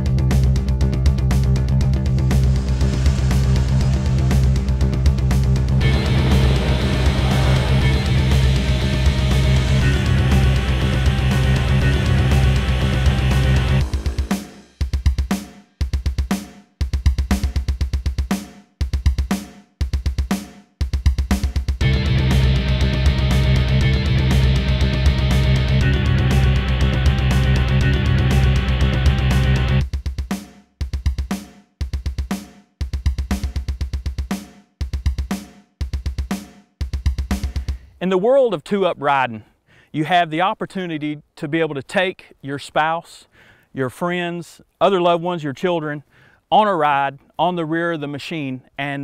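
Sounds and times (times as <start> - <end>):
rock drum bursts: 0.0 - 37.8.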